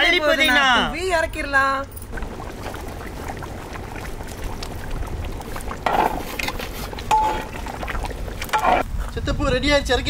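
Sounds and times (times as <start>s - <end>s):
pot bubbling: 0.0s - 9.1s
ladle stirring: 2.0s - 8.8s.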